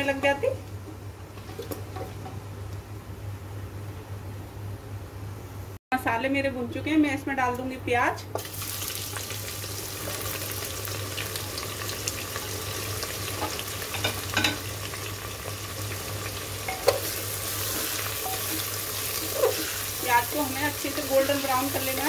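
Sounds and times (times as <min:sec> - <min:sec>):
onions sizzling in oil: 0:08.3 - 0:22.0.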